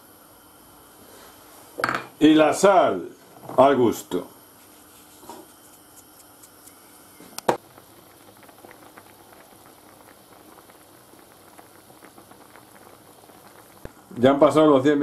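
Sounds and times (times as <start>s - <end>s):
stock bubbling in a pan: 5.2s - 15.0s.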